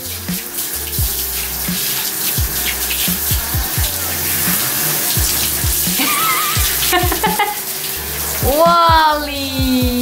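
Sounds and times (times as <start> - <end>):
music with steady beat: 0.0 - 10.0
shower water spraying: 0.0 - 10.0.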